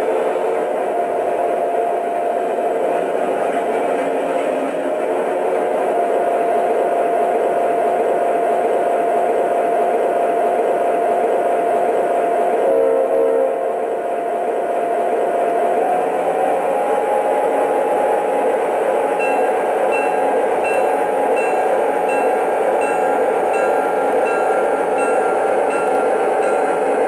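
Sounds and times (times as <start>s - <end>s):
short pitched tone: 19.2s - 27.0s.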